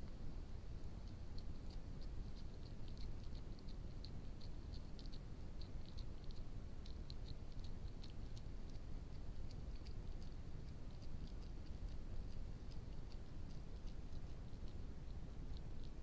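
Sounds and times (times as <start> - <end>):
fox eating clicks and smacks: 0.0 - 16.0.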